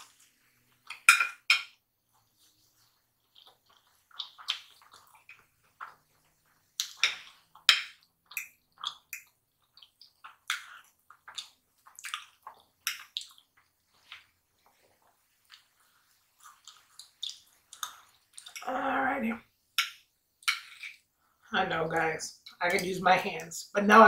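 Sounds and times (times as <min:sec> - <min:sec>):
wet mouth eating sounds: 0:02.2 - 0:18.7.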